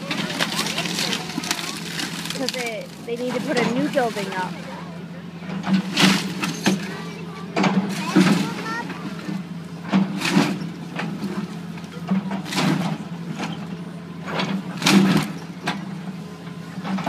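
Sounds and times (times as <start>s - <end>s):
wood breaking and debris crashing: 0.0s - 4.6s
excavator diesel engine running: 0.0s - 17.0s.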